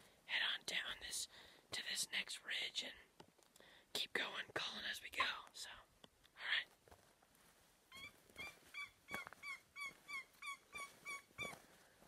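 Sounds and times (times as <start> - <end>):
turkey call yelps: 7.9 - 11.6.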